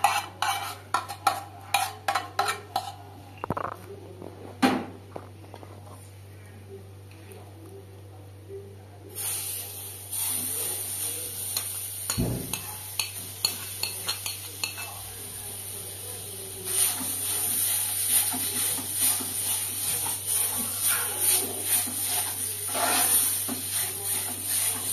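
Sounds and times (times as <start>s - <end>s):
metal spoon scraping a pan: 0.0s - 3.7s, 11.4s - 15.0s, 16.7s - 24.9s
food sizzling in a pan: 9.1s - 24.9s.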